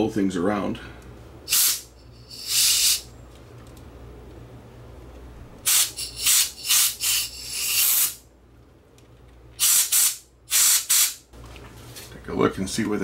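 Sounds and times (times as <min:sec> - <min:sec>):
low steady hum: 0:00.0 - 0:09.6
air nozzle blowing puffs: 0:01.5 - 0:03.1, 0:05.6 - 0:08.2, 0:09.6 - 0:11.2.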